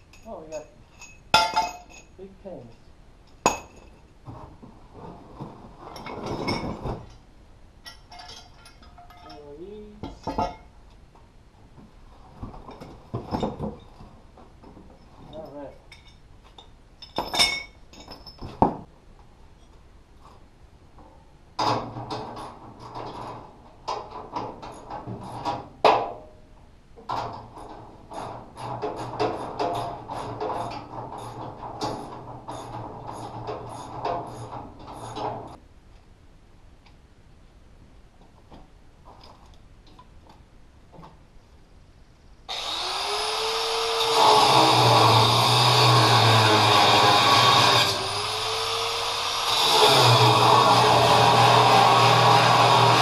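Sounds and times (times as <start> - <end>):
metal clink: 0.0 - 4.0, 7.8 - 10.7, 15.9 - 18.6
metal scraping and rattling: 3.3 - 10.8, 21.6 - 26.1, 27.0 - 35.6
angle grinder cutting steel: 42.5 - 53.0.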